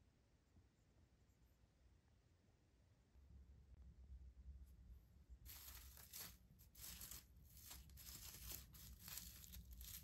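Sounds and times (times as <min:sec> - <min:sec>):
fabric petals rustling: 0:05.4 - 0:10.0.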